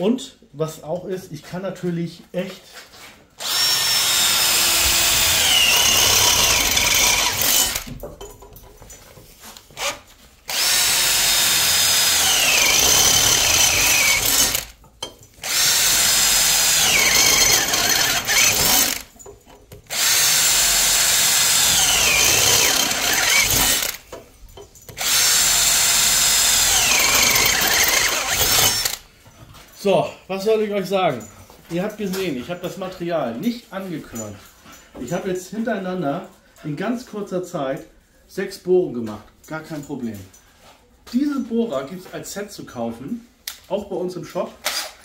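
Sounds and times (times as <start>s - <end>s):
power drill whining through steel: 3.4s - 8.0s, 9.7s - 14.8s, 15.4s - 19.1s, 19.9s - 24.2s, 24.9s - 29.0s.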